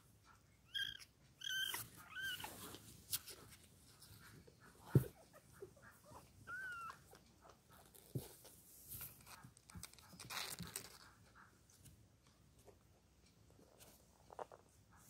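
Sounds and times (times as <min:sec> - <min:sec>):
kittens suckling clicks and rustles: 0:00.1 - 0:15.0
kitten squeaking: 0:00.6 - 0:02.7, 0:04.9 - 0:07.5.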